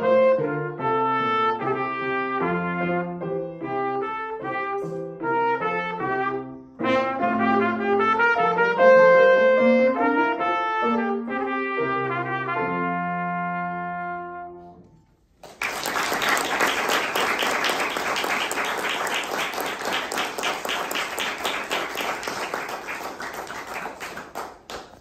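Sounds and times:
trumpet and piano chord: 0.0s - 15.1s
audience applause: 15.4s - 25.0s.

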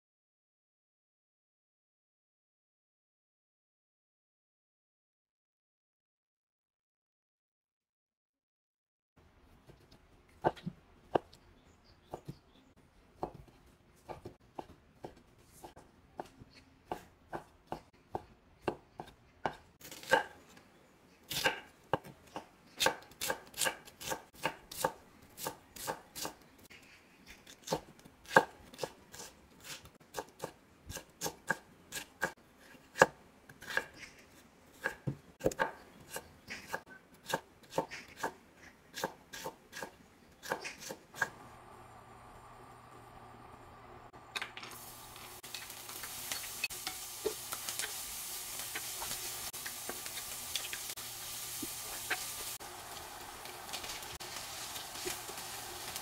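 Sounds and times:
knife chopping on wooden board: 13.2s - 20.4s, 21.3s - 26.4s, 27.6s - 34.0s, 34.8s - 41.4s.

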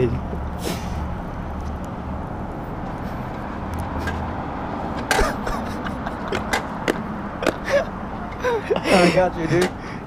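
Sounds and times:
sharp taps: 6.2s - 7.6s.

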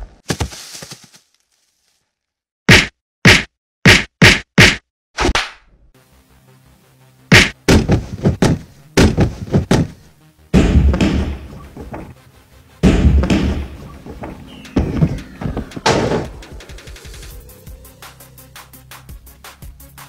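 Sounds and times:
hand strikes slapping: 2.7s - 5.6s, 7.3s - 9.9s
deep booming thuds: 7.3s - 12.2s, 12.8s - 16.5s.

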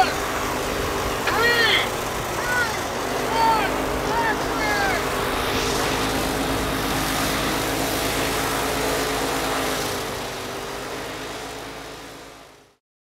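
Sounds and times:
rushing noise: 0.0s - 10.1s
machine humming: 0.0s - 12.6s.

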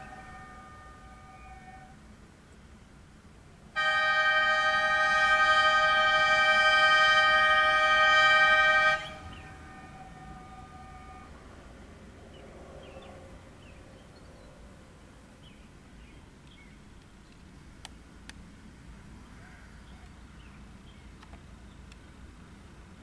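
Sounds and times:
warning horn tone: 0.0s - 2.0s, 3.8s - 11.7s
low outdoor rumble: 0.0s - 23.0s.

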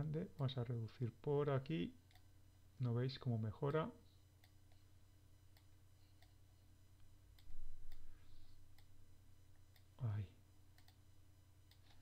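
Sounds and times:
low electrical hum: 0.0s - 12.0s
computer mouse clicks: 10.8s - 11.0s, 11.7s - 12.0s.

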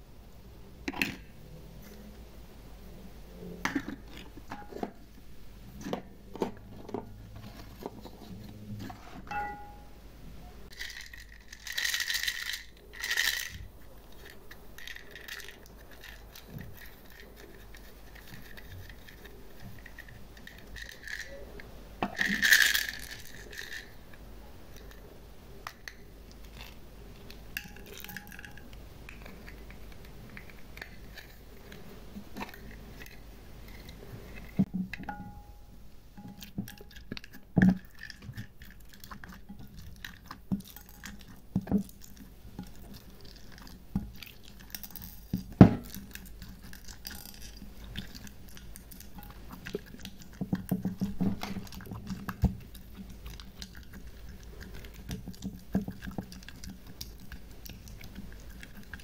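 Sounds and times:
slime squelching: 36.2s - 59.0s.

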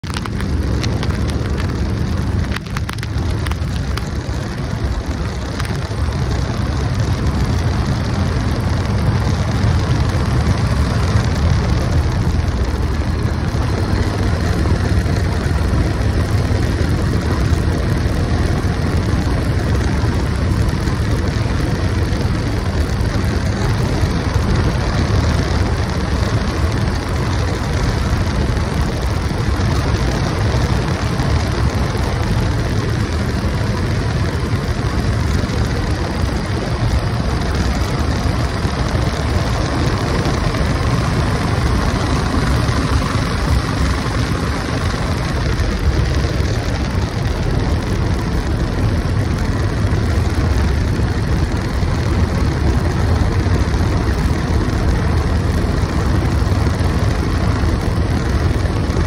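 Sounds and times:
motorcycle engine: 0.0s - 59.0s
wind rush on microphone: 0.0s - 59.0s.

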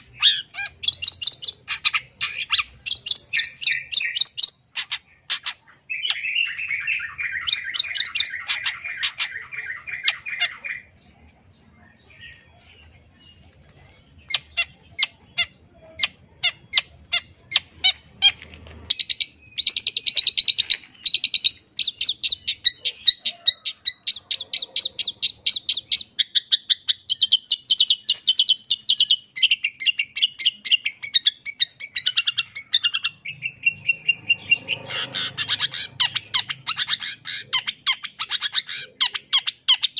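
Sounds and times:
bird high rapid trill: 31.6s - 39.9s.

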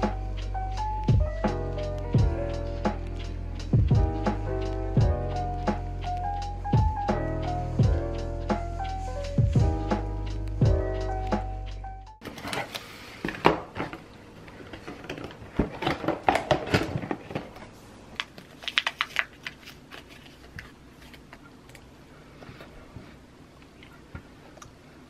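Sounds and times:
background music: 0.0s - 12.2s
paperboard boxes crinkling and tearing: 12.2s - 21.4s.

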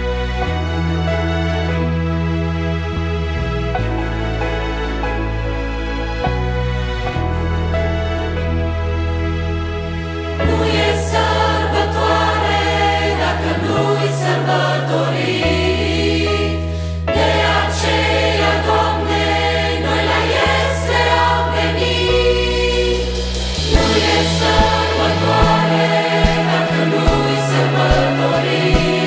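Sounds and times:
bass guitar notes: 0.0s - 15.8s, 18.7s - 29.0s
piano: 0.0s - 29.0s
choir singing in harmony: 10.4s - 29.0s
light percussion: 23.0s - 29.0s.

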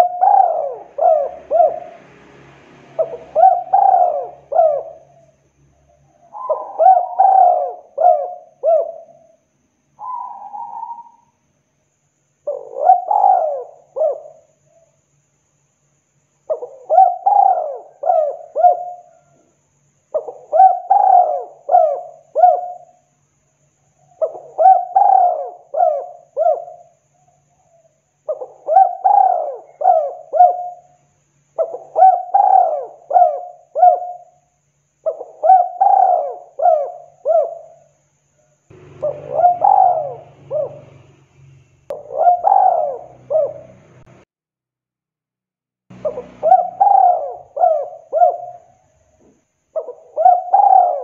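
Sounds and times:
dove cooing: 0.0s - 2.2s, 2.9s - 9.4s, 10.0s - 11.4s, 12.4s - 15.0s, 16.5s - 19.5s, 20.1s - 23.0s, 24.0s - 31.0s, 31.6s - 34.4s, 35.0s - 37.9s, 38.7s - 41.2s, 41.9s - 44.1s, 46.0s - 48.9s, 49.8s - 51.0s.

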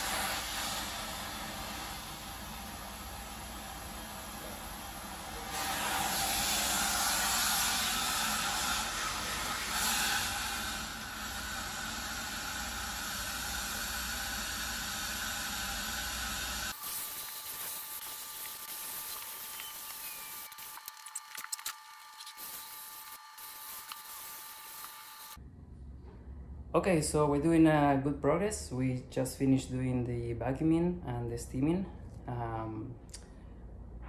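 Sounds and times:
steam hissing: 0.0s - 20.8s.

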